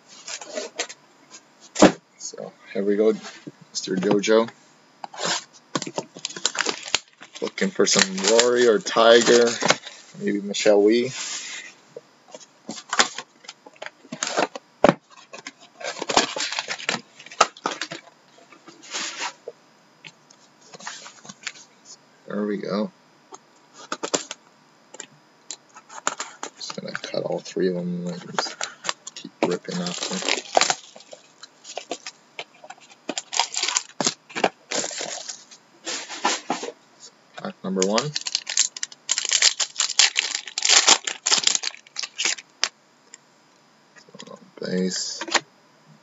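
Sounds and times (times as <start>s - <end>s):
packaging rustling and crinkling: 5.1s - 10.2s, 12.3s - 18.1s, 25.7s - 27.2s, 28.1s - 36.8s, 37.8s - 42.7s
plastic shrink wrap tearing: 6.2s - 9.8s, 29.5s - 35.5s, 37.8s - 42.6s.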